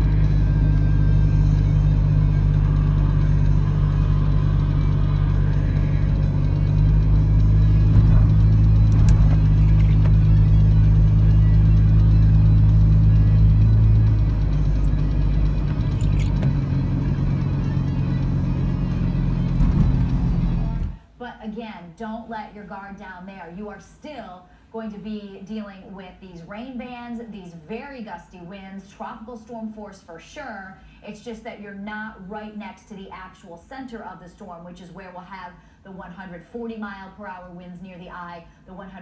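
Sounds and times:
car engine and tyres drone: 0.0s - 21.0s.

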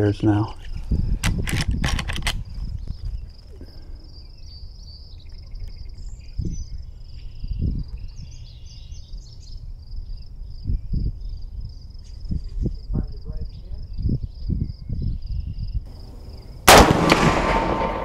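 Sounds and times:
insects trilling: 2.4s - 16.7s.

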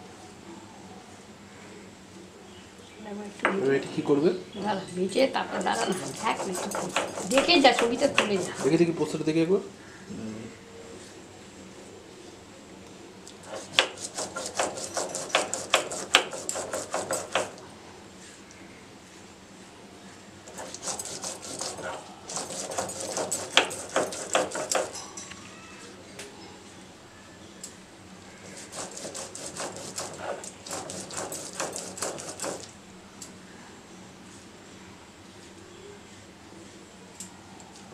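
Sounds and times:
stone roller rasping on slab: 5.4s - 9.1s, 13.4s - 17.6s, 20.5s - 25.0s, 28.4s - 32.7s.

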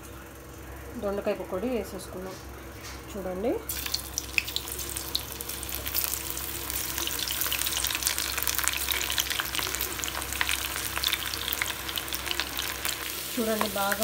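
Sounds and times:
hot oil sizzling and crackling: 3.7s - 14.0s.

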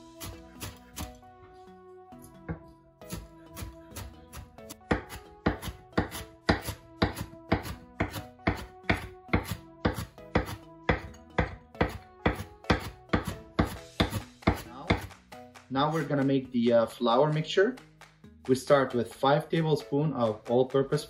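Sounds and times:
knife chopping on wooden board: 0.2s - 1.2s, 2.5s - 15.2s.

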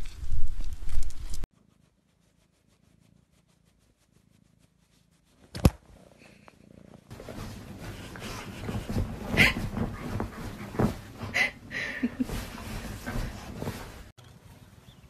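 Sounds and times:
bedding rustling: 5.3s - 14.2s.

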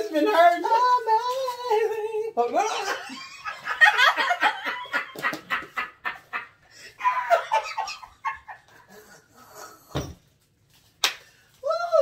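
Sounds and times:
women cackling laughter: 2.7s - 9.3s.

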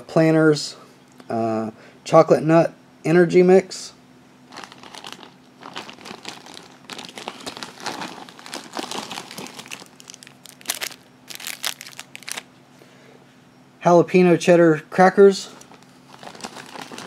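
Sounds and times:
snack packets crinkling: 4.5s - 12.5s, 15.6s - 17.0s.

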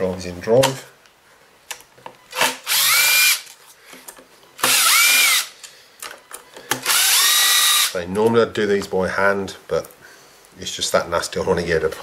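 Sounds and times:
impact driver motor whining: 2.3s - 3.4s, 4.6s - 5.5s, 6.8s - 8.0s.

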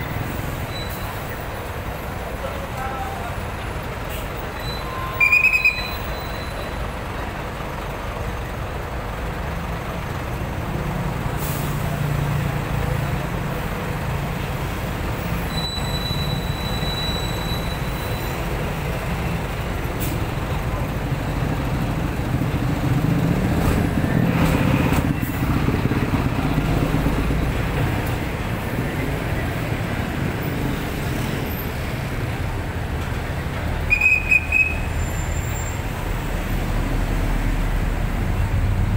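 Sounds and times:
heavy road traffic rumble: 0.0s - 38.9s
whistle blast: 4.6s - 6.7s, 15.5s - 18.3s, 33.9s - 35.7s.

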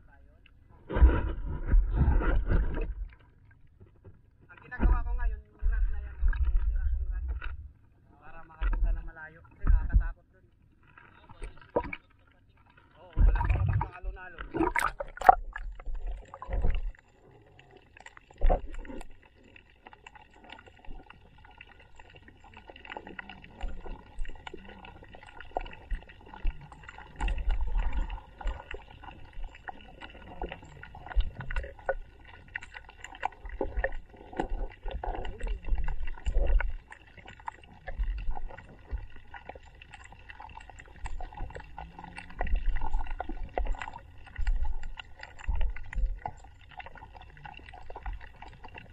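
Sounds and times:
muffled water sloshing: 0.0s - 48.9s
low thumps of camera moving: 0.8s - 3.1s.

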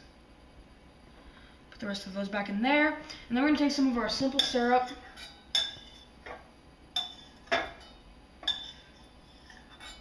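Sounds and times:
metal spoon clinking on saucepan: 4.3s - 6.4s, 7.0s - 10.0s.

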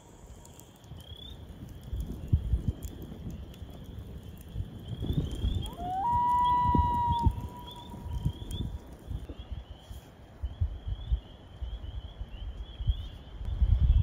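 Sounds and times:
loon wailing: 5.6s - 8.2s.

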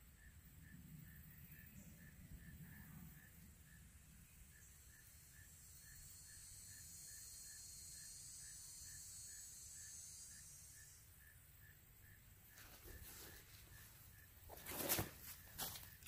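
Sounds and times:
faint insect buzzing: 3.7s - 11.4s.

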